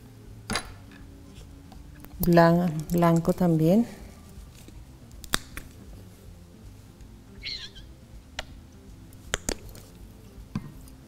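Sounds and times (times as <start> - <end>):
paint bottle squeak: 7.4 - 7.9.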